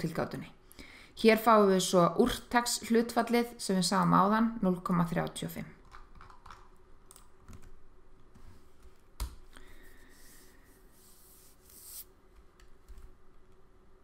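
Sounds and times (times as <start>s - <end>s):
computer keyboard clicks: 5.8s - 7.7s
soft hissing rustle: 9.7s - 12.2s.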